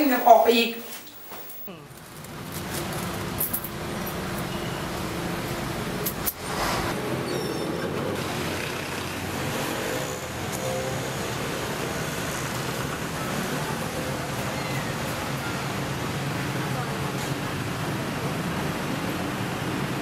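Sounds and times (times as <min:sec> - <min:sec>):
street traffic hum: 0:01.1 - 0:20.0.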